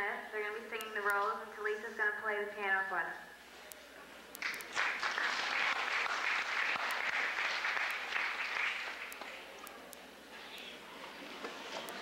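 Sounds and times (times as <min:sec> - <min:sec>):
audience applauding: 0:04.4 - 0:09.5.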